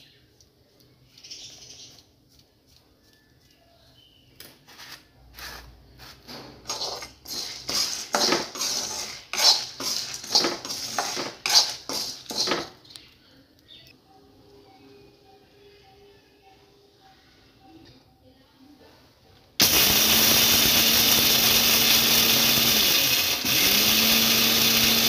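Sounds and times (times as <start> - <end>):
metal spoon scraping a pan: 4.7 - 12.8.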